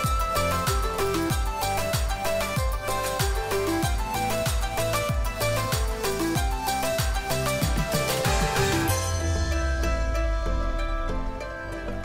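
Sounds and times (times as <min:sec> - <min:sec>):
kick-drum thuds: 0:00.0 - 0:08.9
melody of held notes: 0:00.0 - 0:12.0.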